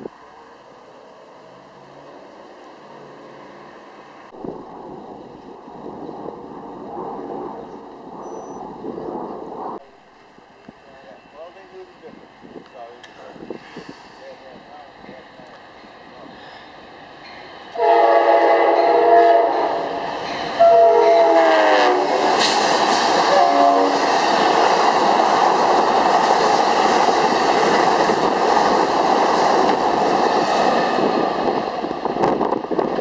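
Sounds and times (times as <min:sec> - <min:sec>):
train passing with rail clatter: 0:00.0 - 0:33.0
train horn blasts: 0:17.8 - 0:20.0, 0:20.6 - 0:22.3, 0:23.3 - 0:24.0.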